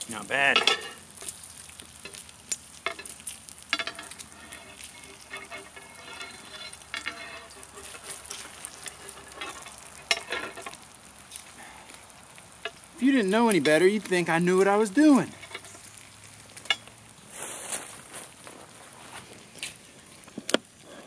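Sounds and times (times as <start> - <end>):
bacon sizzling and popping: 0.0 - 21.0
wire grill rack clinking: 0.4 - 1.2, 2.0 - 10.8, 15.0 - 15.8, 16.6 - 16.9.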